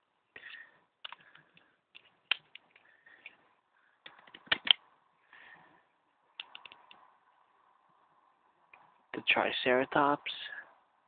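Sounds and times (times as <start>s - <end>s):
plastic toy parts clicking: 1.0s - 3.4s, 4.0s - 4.8s, 6.3s - 7.0s.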